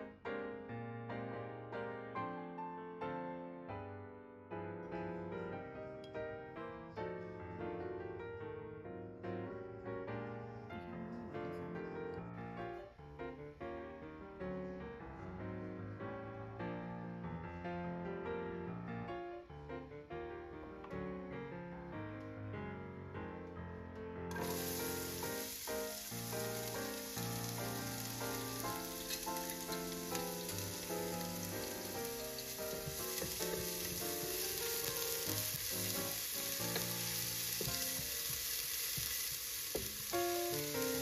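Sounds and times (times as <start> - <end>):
soft piano music: 0.0 - 41.0
onion sizzling in hot oil: 24.3 - 41.0
wooden spoon stirring: 32.2 - 36.0.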